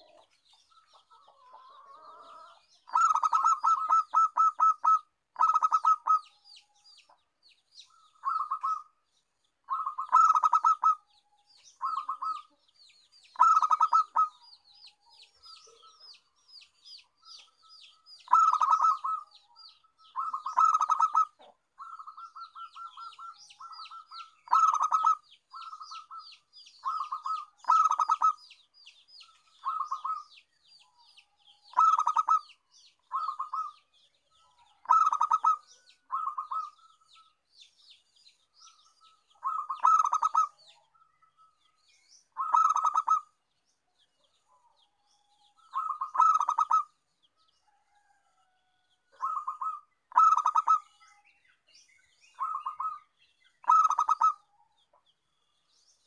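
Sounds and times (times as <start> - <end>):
dove cooing staccato: 0.0 - 6.3, 7.9 - 9.0, 9.7 - 12.6, 13.3 - 14.4, 18.2 - 19.4, 20.1 - 28.4, 29.5 - 30.3, 31.7 - 33.8, 34.5 - 37.0, 39.4 - 40.8, 42.4 - 43.4, 45.6 - 47.0, 49.1 - 51.0, 52.4 - 54.5.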